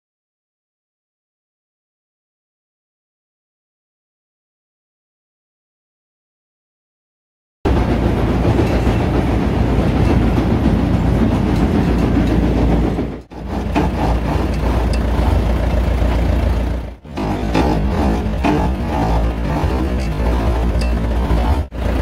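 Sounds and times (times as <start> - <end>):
combine harvester running: 7.7 - 22.0.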